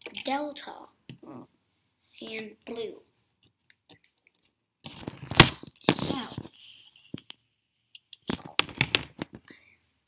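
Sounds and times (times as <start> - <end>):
plastic toy pieces clacking: 8.0 - 9.4.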